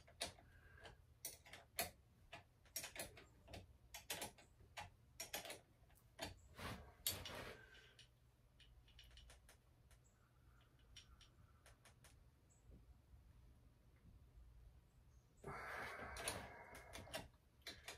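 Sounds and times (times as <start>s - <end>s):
scraping rustle: 6.5s - 8.0s.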